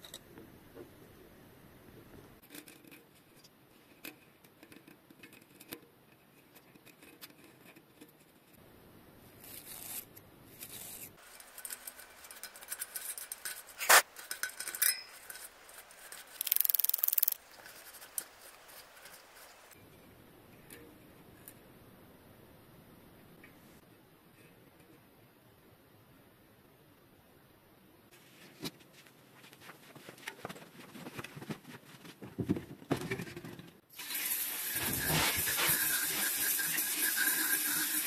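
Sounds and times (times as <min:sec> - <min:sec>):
light clicks and rubbing: 0:10.6 - 0:19.8
scraping hiss: 0:10.6 - 0:19.8, 0:34.2 - 0:38.0.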